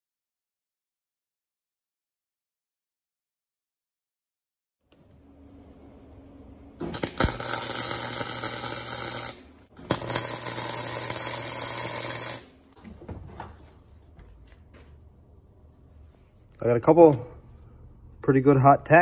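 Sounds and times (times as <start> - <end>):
welding arc crackling and buzzing: 6.8 - 12.8.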